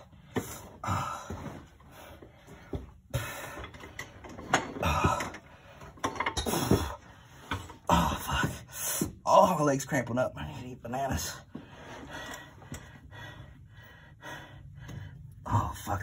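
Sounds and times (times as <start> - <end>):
man grunting and groaning: 4.8 - 5.5, 7.8 - 9.1, 15.4 - 16.0.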